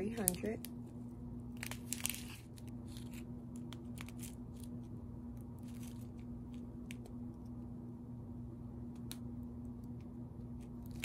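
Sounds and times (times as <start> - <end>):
plastic bags crinkling: 0.0 - 0.7, 1.5 - 4.7
faint steady hum: 0.0 - 11.0.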